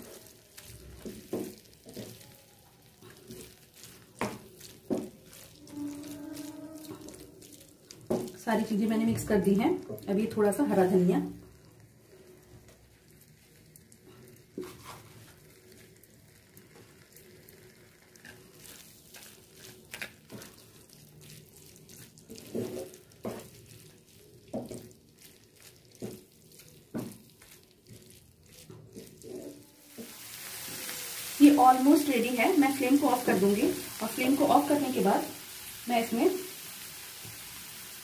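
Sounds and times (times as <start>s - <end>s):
spatula scraping and tapping pan: 0.0s - 2.3s, 3.0s - 7.2s, 7.9s - 8.4s, 14.5s - 15.8s, 18.2s - 30.9s
faint sizzling in a pan: 0.0s - 38.0s.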